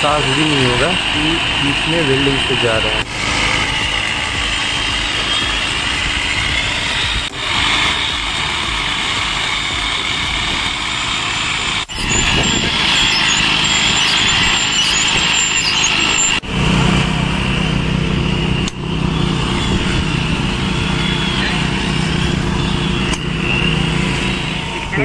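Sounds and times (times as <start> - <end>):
rail grinder grinding metal: 0.0 - 25.0.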